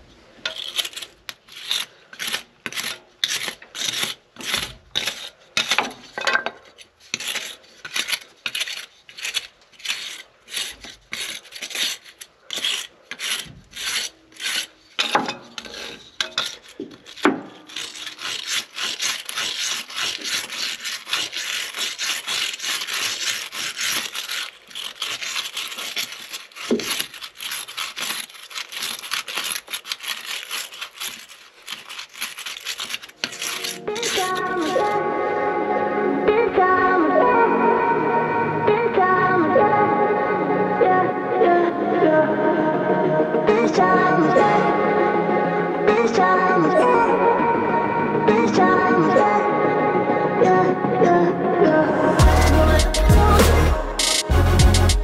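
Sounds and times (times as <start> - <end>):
stick scraping dirt off metal: 0.0 - 35.0.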